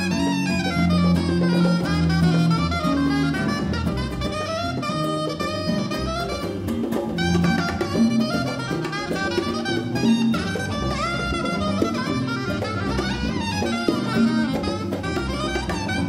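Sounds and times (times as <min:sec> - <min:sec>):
acoustic guitar: 0:00.0 - 0:16.0
bass: 0:00.0 - 0:16.0
congas: 0:00.0 - 0:16.0
saxophone lead line: 0:00.0 - 0:16.0.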